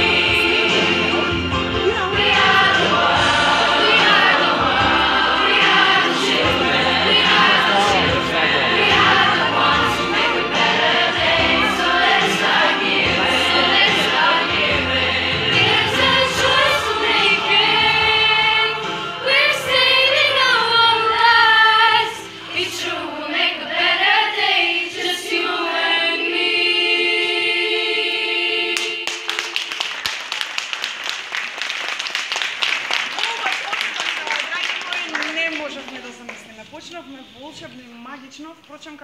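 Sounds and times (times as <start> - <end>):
girls' choir singing: 0.0 - 30.0
audience applause: 28.8 - 36.6.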